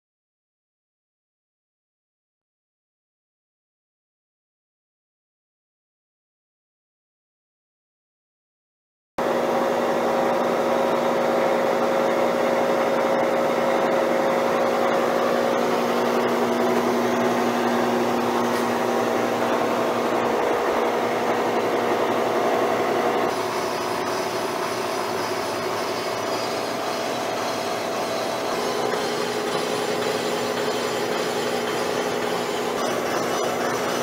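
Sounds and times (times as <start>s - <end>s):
high machine whine: 9.2s - 34.0s
milling machine running: 9.2s - 34.0s.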